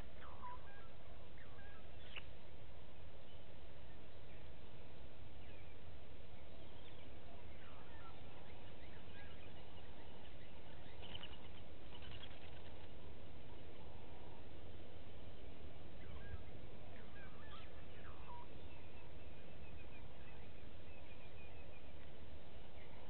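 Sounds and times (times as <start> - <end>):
short bird calls: 0.0 - 2.3, 16.0 - 22.0
low outdoor rumble: 0.0 - 23.0.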